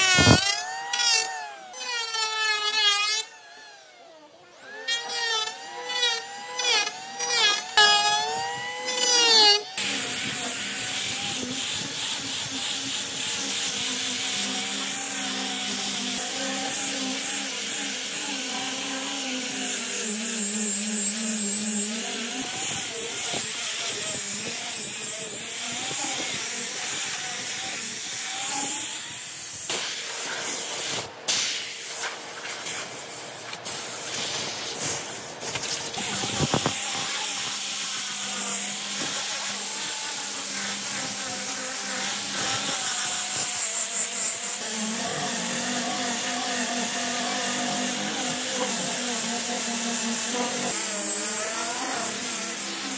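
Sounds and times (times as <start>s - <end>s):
sanding disc scrubbing wood: 0.0s - 3.4s, 4.7s - 52.9s
angle grinder motor whine: 0.0s - 31.0s, 33.5s - 52.9s
power tool: 0.0s - 52.9s.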